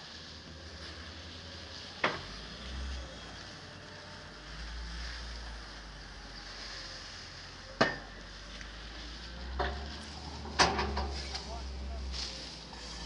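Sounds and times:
shovel scraping truck bed: 0:09.2 - 0:13.0.

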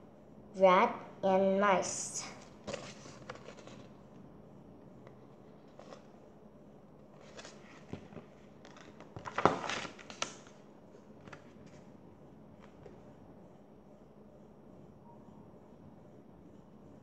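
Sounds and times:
book page turning rustles: 0:02.4 - 0:04.0, 0:05.4 - 0:06.1, 0:07.1 - 0:11.9.

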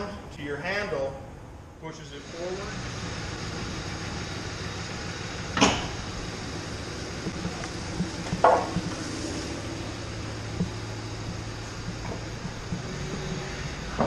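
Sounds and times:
low steady hum: 0:00.0 - 0:14.0
sharp metal clunks: 0:05.6 - 0:06.0.

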